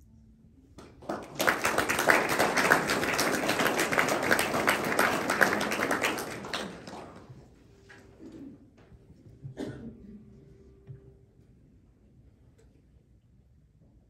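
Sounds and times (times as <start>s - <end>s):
audience applauding: 1.0s - 7.4s.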